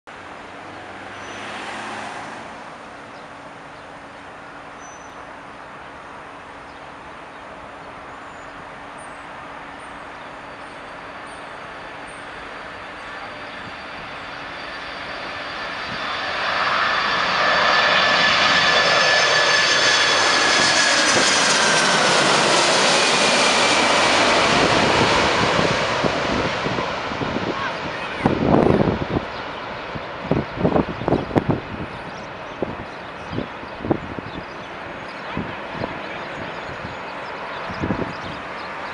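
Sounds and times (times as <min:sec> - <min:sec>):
high engine whine: 0:00.1 - 0:38.9
jet engines passing overhead: 0:00.1 - 0:38.9.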